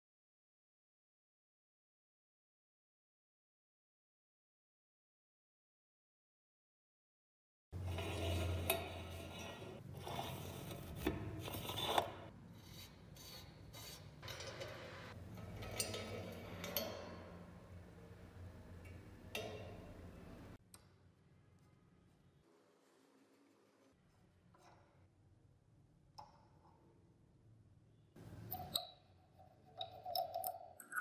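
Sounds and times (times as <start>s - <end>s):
corroded metal parts scraping: 7.8s - 20.6s.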